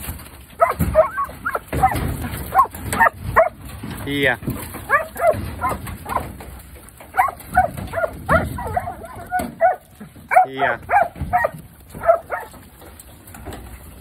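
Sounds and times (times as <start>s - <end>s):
dog barking: 0.6s - 3.6s, 4.9s - 5.8s, 7.2s - 12.6s.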